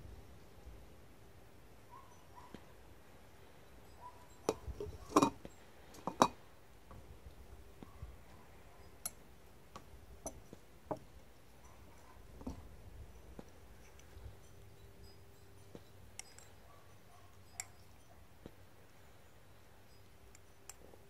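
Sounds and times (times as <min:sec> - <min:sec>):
metal rod clinking in glass beaker: 0:04.2 - 0:05.4, 0:06.0 - 0:06.4, 0:11.6 - 0:18.2.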